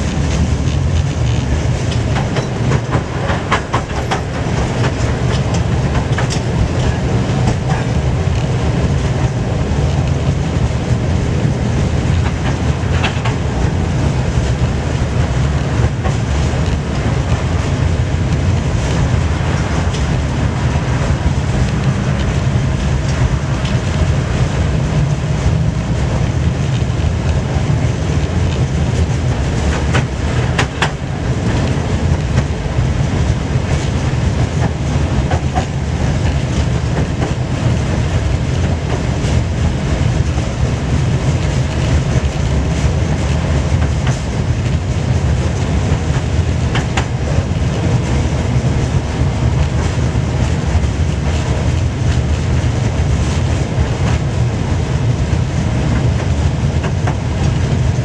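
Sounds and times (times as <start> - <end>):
tram wheels rumbling: 0.0 - 58.0
wheels clicking over rail joints: 0.0 - 58.0.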